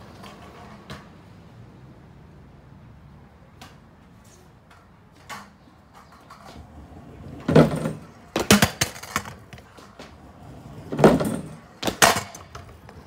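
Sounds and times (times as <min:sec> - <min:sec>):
scooter clattering on concrete: 0:00.0 - 0:01.2, 0:03.6 - 0:13.0
scooter thud on wooden ramp: 0:07.4 - 0:09.4, 0:10.9 - 0:12.5.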